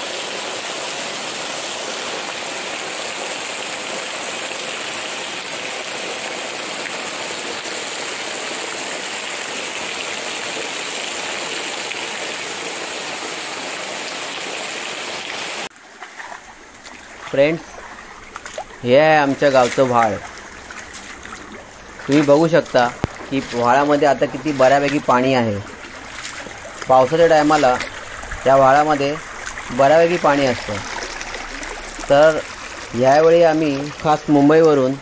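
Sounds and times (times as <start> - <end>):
heavy rain on foliage: 0.0 - 15.7.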